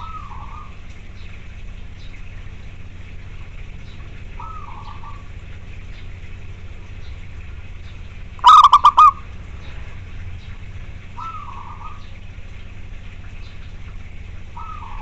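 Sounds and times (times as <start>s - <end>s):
steady low hum: 0.0s - 15.0s
dove calling staccato notes: 4.3s - 6.0s, 7.1s - 9.8s, 10.4s - 12.2s, 13.2s - 15.0s.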